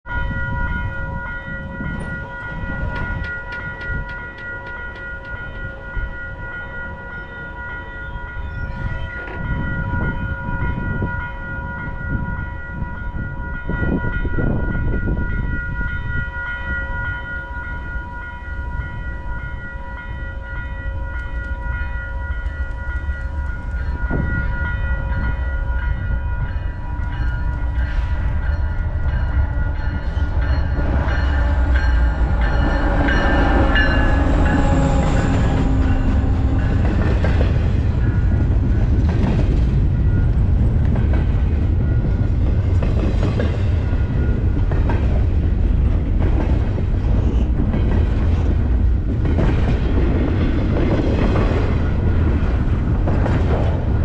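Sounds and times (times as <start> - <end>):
diesel locomotive rumble: 18.7 - 54.0.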